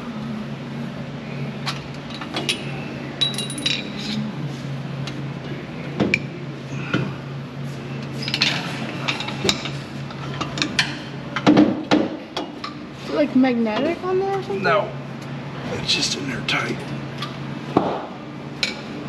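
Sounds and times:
steady low hum: 0.0s - 19.0s
metal tools clinking: 3.2s - 4.2s.

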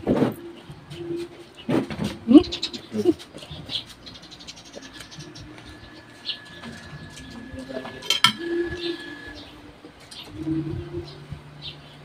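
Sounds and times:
doves cooing: 0.0s - 12.0s
spoon clinking on a dish: 8.0s - 8.5s.

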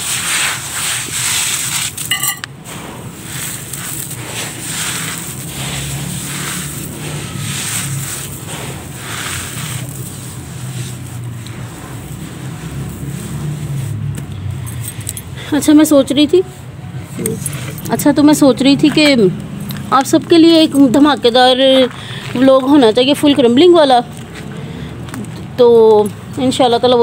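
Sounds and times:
hand crumbling dry dirt and gravel: 0.3s - 15.2s.

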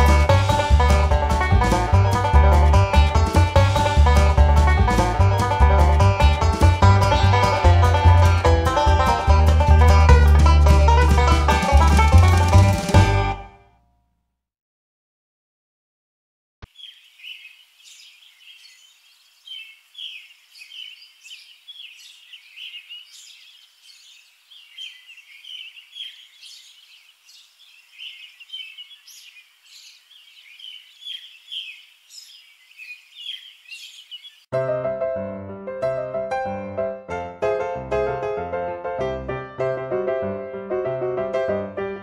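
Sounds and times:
small birds chirping: 16.6s - 34.5s.

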